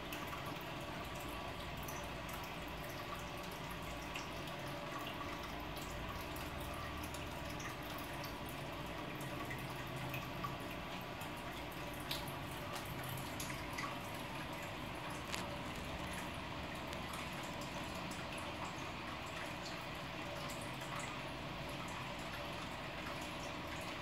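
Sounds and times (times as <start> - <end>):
small water drips: 0.0 - 24.0
water trickling: 0.0 - 24.0.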